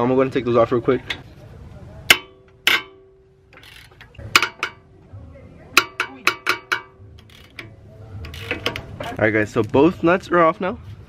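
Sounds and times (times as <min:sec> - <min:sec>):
socket ratchet clicking: 0:02.6 - 0:04.8, 0:05.8 - 0:09.2.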